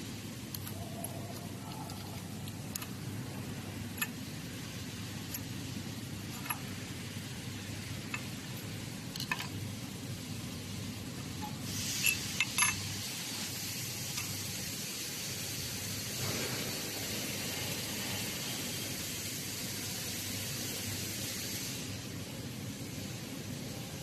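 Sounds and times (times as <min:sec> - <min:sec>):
steady hiss: 0:00.0 - 0:24.0
light metal clinks: 0:11.4 - 0:13.0.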